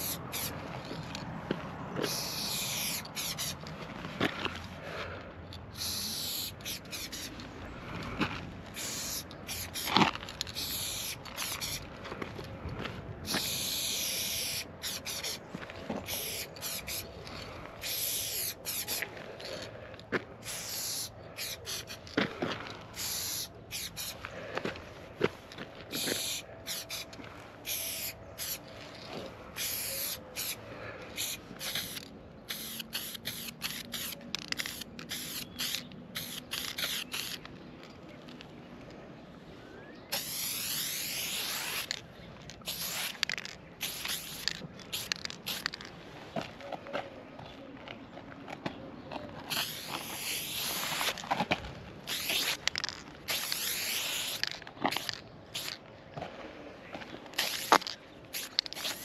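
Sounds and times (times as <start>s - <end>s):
spray paint can hissing: 0.0s - 0.6s, 2.0s - 3.7s, 5.7s - 7.4s, 8.7s - 11.9s, 13.3s - 17.1s, 17.8s - 19.1s, 20.4s - 22.2s, 22.9s - 24.2s, 25.9s - 28.7s, 29.5s - 30.6s, 31.2s - 37.5s, 40.1s - 42.0s, 42.6s - 45.9s, 49.5s - 51.2s, 52.1s - 55.8s, 57.4s - 59.0s.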